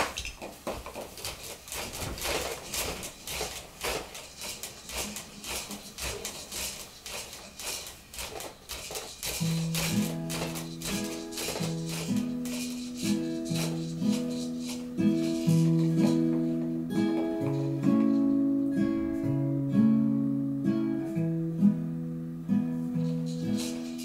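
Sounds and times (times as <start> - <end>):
plastic toys clicking and rattling: 0.0 - 16.4, 23.1 - 24.0
acoustic guitar picked notes: 9.4 - 24.0.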